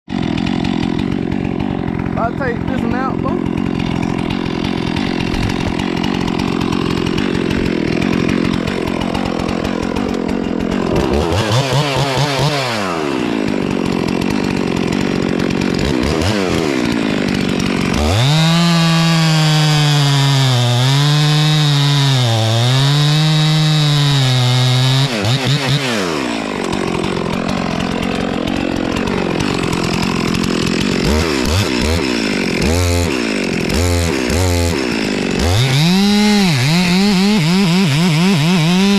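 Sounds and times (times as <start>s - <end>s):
chainsaw cutting tree trunk: 0.0s - 38.9s.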